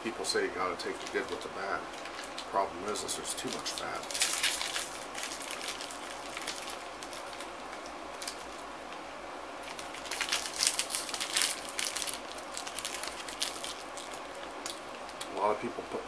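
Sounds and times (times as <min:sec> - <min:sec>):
plastic wrapper crinkling and tearing: 0:00.6 - 0:08.7, 0:09.6 - 0:15.4.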